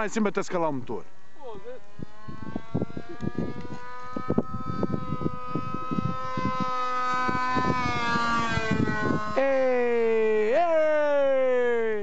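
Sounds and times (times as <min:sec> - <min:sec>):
model airplane engine droning: 0:01.0 - 0:11.9
wind thumps on microphone: 0:02.0 - 0:09.4.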